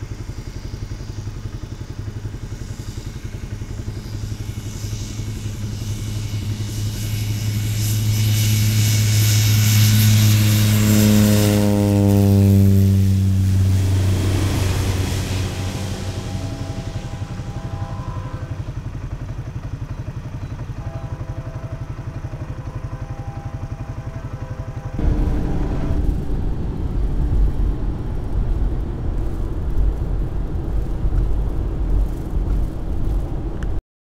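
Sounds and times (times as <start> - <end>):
propeller plane engine throbbing: 0.0 - 33.8
road and wind noise in a car: 25.0 - 33.8.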